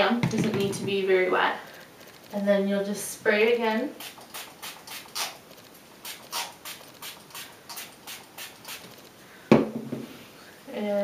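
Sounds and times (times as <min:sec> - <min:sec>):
spray bottle spritzing: 0:03.9 - 0:09.1.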